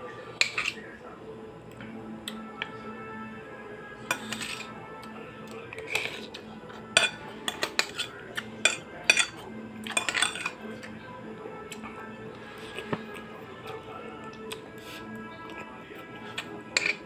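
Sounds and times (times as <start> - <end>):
background music: 0.0 - 17.0
spoon clinking on ceramic bowl: 7.0 - 10.6, 16.8 - 17.0.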